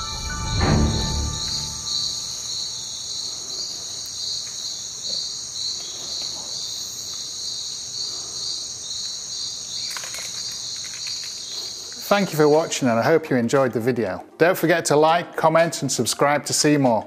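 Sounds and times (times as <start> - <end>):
pulsing high insect call: 0.0 - 13.0
insects buzzing: 0.0 - 13.1.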